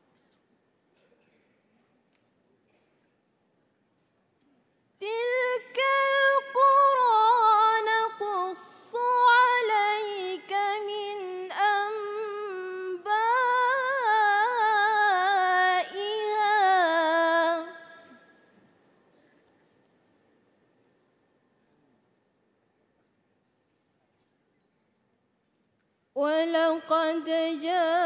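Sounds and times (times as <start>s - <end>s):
woman reciting melodically: 5.0s - 18.3s, 26.2s - 28.0s.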